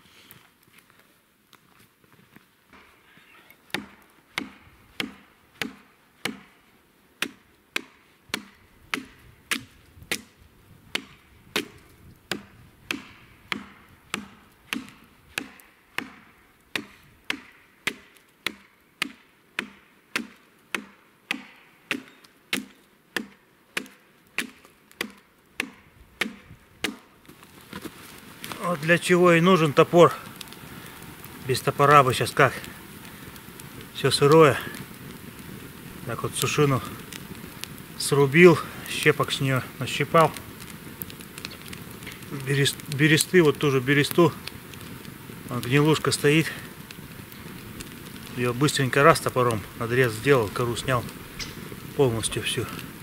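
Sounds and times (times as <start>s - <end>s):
axe chopping log: 3.7s - 6.6s, 7.2s - 27.1s.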